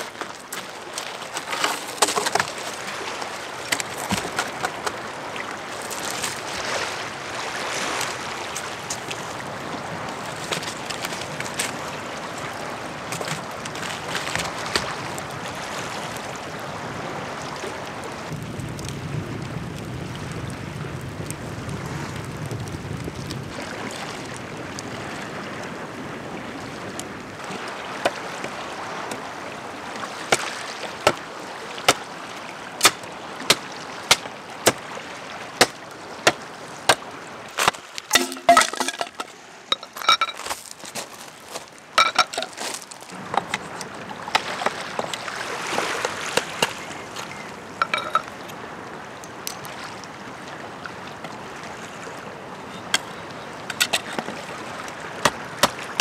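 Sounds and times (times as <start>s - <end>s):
waves on shore: 0.0s - 56.0s
wind: 0.0s - 56.0s
hatchet chopping wood: 32.8s - 34.8s, 55.2s - 56.0s.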